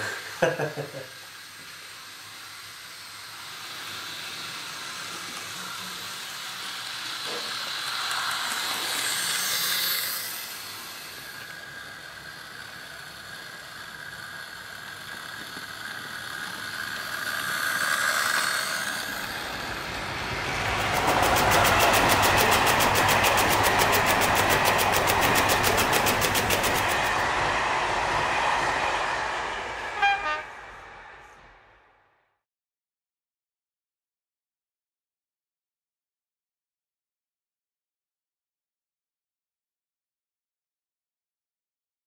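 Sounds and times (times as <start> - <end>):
model train motor and wheels hiss: 0.0 - 31.6
split-flap letters rattling: 20.8 - 27.2.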